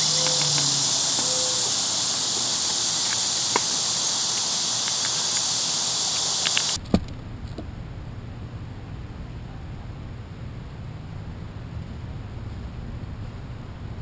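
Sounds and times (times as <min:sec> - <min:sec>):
high-pitched insect chorus: 0:00.0 - 0:06.8
low hum: 0:00.0 - 0:14.0.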